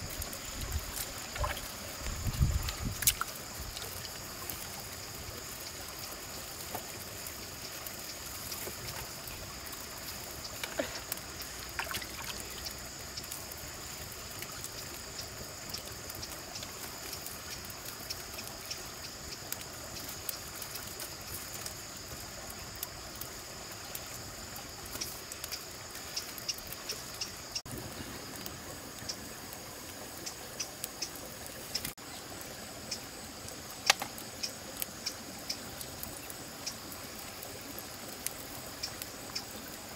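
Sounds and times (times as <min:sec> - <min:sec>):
small splashes and clicks: 0:00.0 - 0:32.0, 0:32.8 - 0:39.9
stream water trickling: 0:00.0 - 0:39.9.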